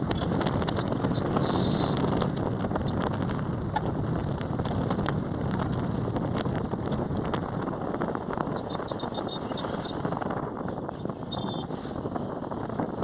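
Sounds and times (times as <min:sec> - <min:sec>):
motorbike engine and road noise: 0:00.0 - 0:13.0
wind on microphone: 0:00.0 - 0:13.0.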